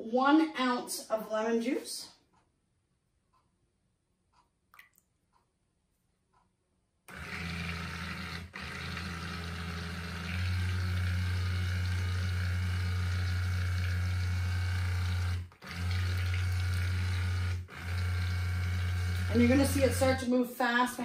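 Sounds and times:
stick blender motor hum: 7.1 - 20.2.

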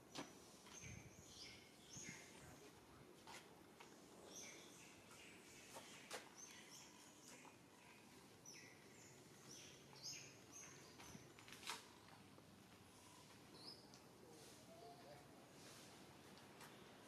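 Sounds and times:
faint bird chirps: 4.3 - 11.3.

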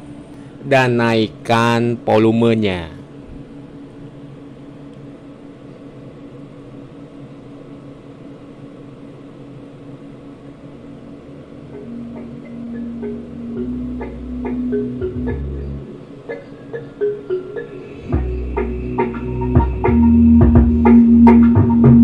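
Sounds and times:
cooling fan humming: 0.0 - 22.0
faint music through amplifier: 11.1 - 22.0.

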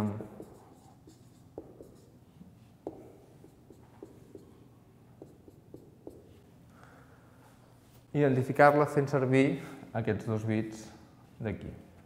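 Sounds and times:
marker writing on whiteboard: 0.0 - 6.5
marker taps on whiteboard: 1.5 - 2.0, 2.8 - 4.5, 5.2 - 6.3.

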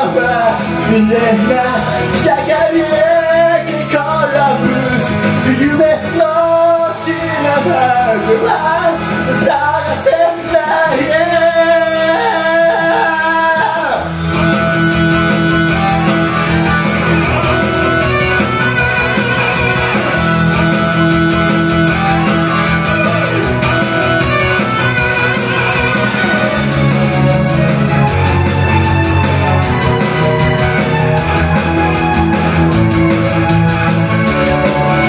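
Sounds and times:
man singing into microphone: 0.0 - 14.2
pop-rock backing track: 0.0 - 35.0.

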